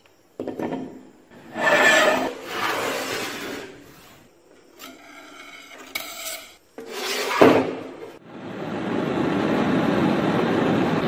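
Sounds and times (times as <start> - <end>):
hard object scraping a hard surface: 1.4 - 7.8.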